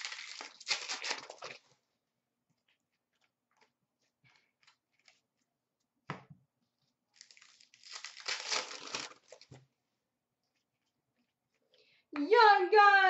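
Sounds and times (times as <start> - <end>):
wrapper tearing with crinkling: 0.0 - 1.7, 7.2 - 9.5.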